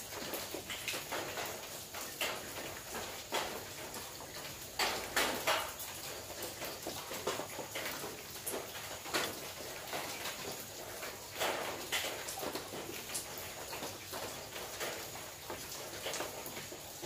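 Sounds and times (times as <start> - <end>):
rain on a metal roof: 0.0 - 17.0.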